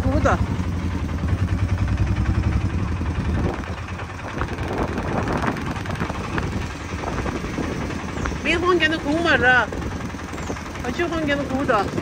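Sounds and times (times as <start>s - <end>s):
auto-rickshaw engine running: 0.0s - 12.0s.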